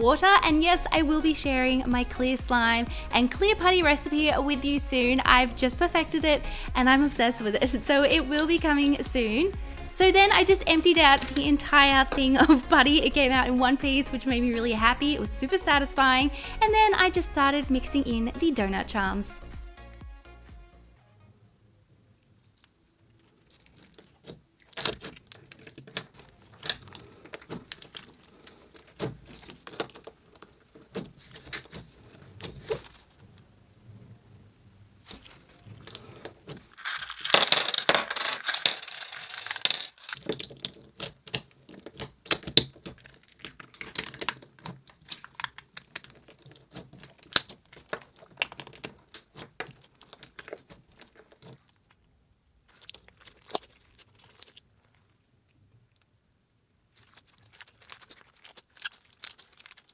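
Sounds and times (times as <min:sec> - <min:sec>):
sticky clicks and crackles: 0:22.4 - 0:33.2, 0:35.0 - 0:52.1, 0:52.7 - 0:55.2, 0:56.9 - 0:59.9
putty being kneaded: 0:23.4 - 0:33.2, 0:52.6 - 0:54.7.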